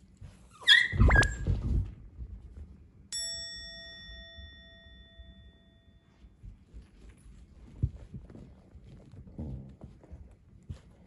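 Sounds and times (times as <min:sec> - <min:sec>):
bell-like chime: 0:03.1 - 0:06.3.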